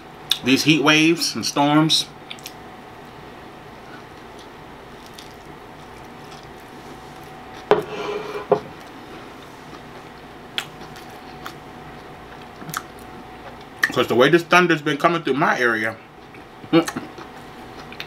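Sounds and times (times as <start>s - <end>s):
man chewing: 3.8s - 7.7s, 8.8s - 13.9s, 16.2s - 18.0s.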